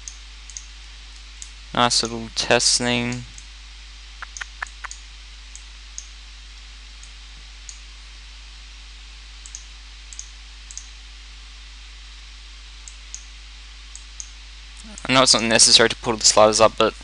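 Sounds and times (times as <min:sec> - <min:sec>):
low electrical hum: 0:00.0 - 0:17.0
computer mouse clicking: 0:04.2 - 0:05.0.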